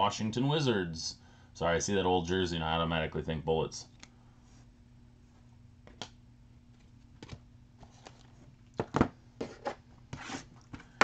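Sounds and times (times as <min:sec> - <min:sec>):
faint low hum: 0:00.0 - 0:11.0
clicks and knocks of card boxes: 0:06.8 - 0:09.9.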